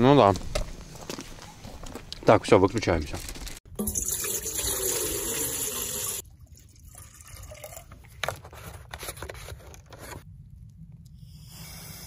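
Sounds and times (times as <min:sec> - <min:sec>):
water pouring into metal kettle: 0:03.8 - 0:08.0.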